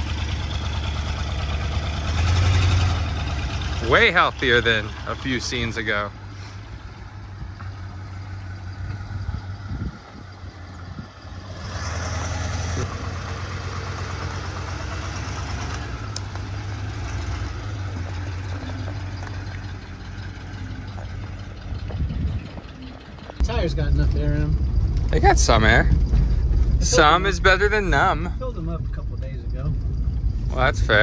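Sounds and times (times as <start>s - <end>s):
car engine idling: 0.0s - 31.0s.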